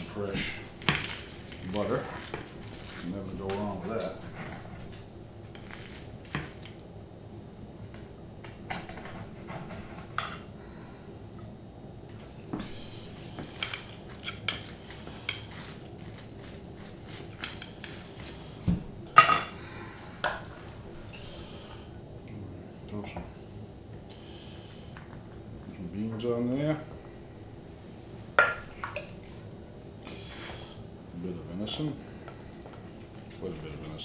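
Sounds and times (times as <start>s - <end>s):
dishes and utensils clinking: 19.2s - 19.6s.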